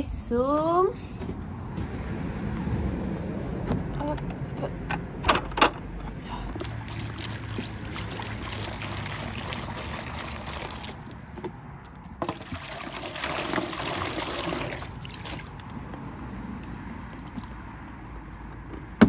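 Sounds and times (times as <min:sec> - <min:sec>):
water splashing into bucket: 0:06.5 - 0:11.6, 0:12.2 - 0:16.0, 0:17.0 - 0:17.6.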